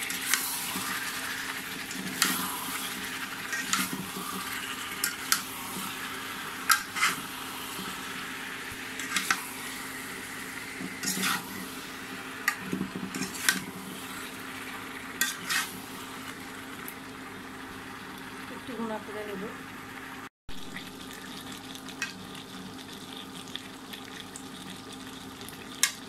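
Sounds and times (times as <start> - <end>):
spatula scraping a wok: 0.0 - 8.1, 8.8 - 14.4, 15.2 - 16.2
oil sizzling: 0.0 - 26.0.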